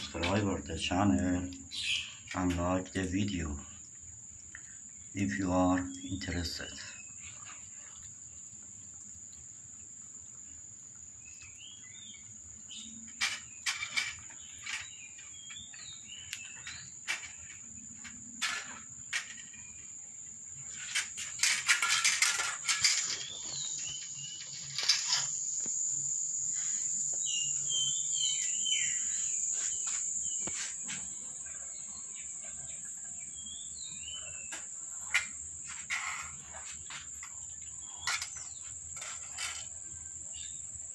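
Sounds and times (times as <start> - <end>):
bird chirps: 14.3 - 17.0, 22.9 - 25.3, 26.6 - 35.4
rustling noise: 20.6 - 27.3, 28.4 - 31.7
high-pitched insect drone: 20.7 - 40.9.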